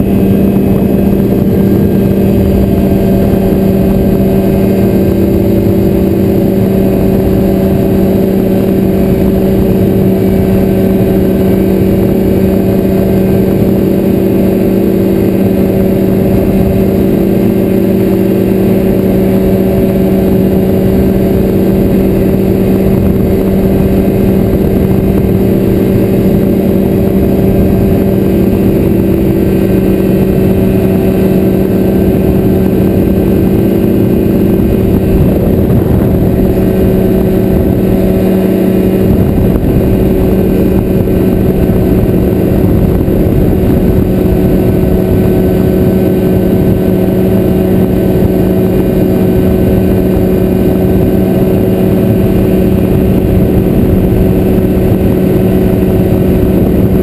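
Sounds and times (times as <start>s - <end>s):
aircraft engine and propeller drone: 0.0s - 57.0s
wind rushing over microphone: 0.0s - 57.0s.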